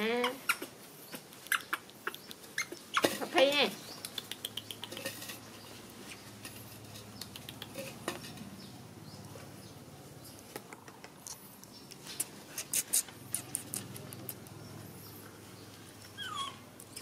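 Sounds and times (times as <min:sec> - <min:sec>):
sharp clicks: 0:03.9 - 0:05.0
animals scuffling on dirt: 0:04.9 - 0:07.2.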